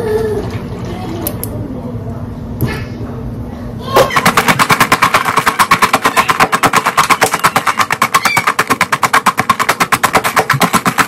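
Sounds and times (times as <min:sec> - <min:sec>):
stick crushing chips in plastic cup: 0:04.1 - 0:11.0.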